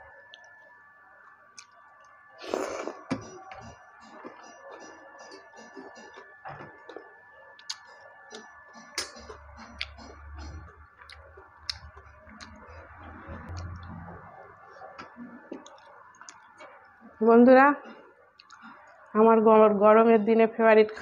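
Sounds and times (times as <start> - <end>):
mouth chewing: 2.4 - 3.2, 7.6 - 16.7, 18.4 - 19.1.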